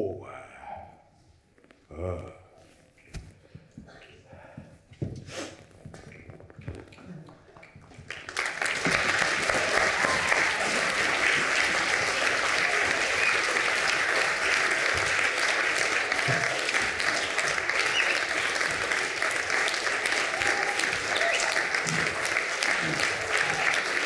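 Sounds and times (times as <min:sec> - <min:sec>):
audience applauding: 0:06.9 - 0:24.0.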